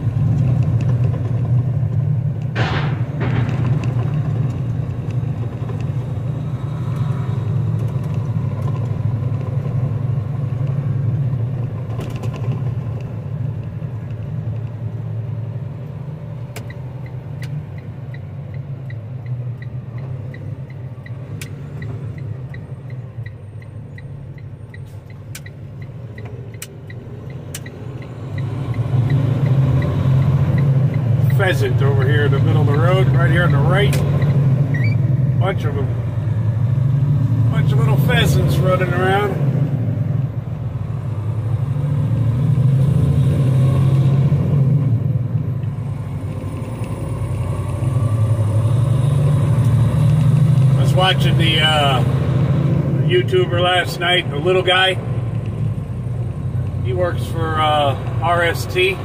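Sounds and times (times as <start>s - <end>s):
truck engine and road rumble: 0.0s - 59.0s
clicks: 24.0s - 31.0s.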